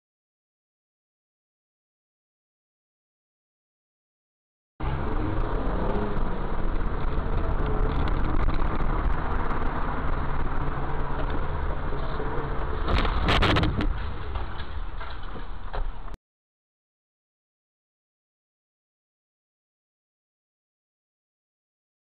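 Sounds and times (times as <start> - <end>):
car engine and road noise: 4.8 - 16.2.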